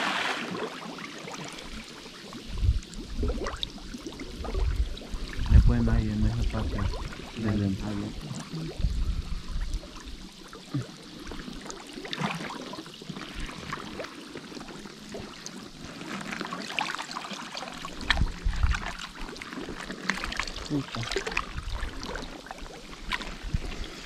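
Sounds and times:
river water splashing: 0.0 - 2.4, 9.8 - 24.0.

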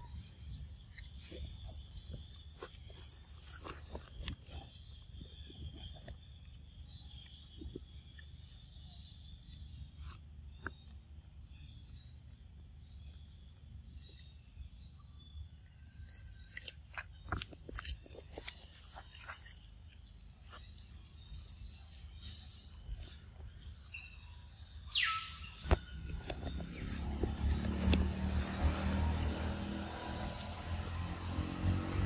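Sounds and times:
insects droning: 0.0 - 32.0
monkey chewing fruit: 16.1 - 19.7.

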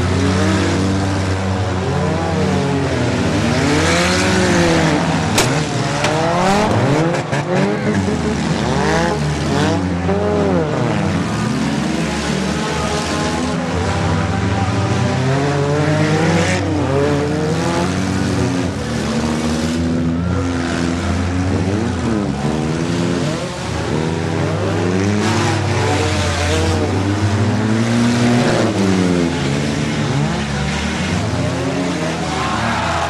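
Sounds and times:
car engines revving: 0.0 - 33.0
cars hitting each other: 3.4 - 13.5.

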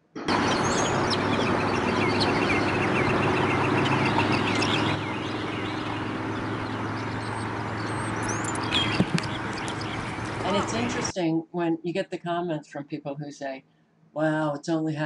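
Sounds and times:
low hum: 0.0 - 11.2
birds chirping: 0.2 - 11.1.

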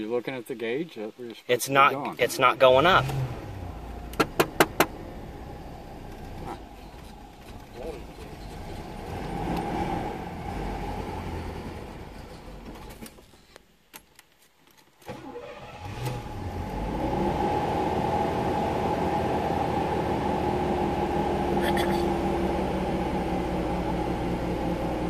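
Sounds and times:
car engine starting: 2.4 - 13.4, 15.0 - 25.0
car engine running: 2.7 - 13.1, 16.3 - 25.0.

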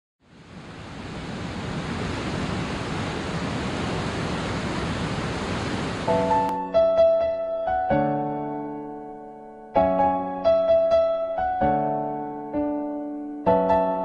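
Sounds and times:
steady rushing noise: 0.2 - 6.5
electric piano chord: 6.1 - 14.0.

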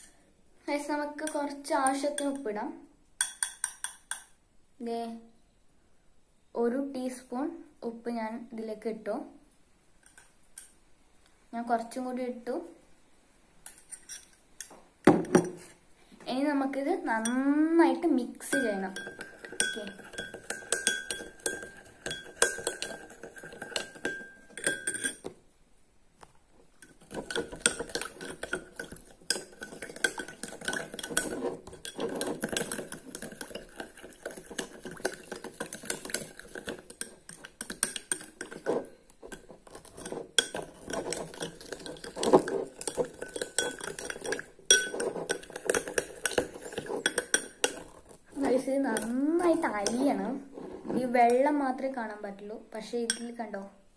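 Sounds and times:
spoon clinking against glass bowl: 3.2 - 4.4, 18.5 - 25.3, 26.8 - 48.0, 48.9 - 50.0, 53.1 - 53.3.

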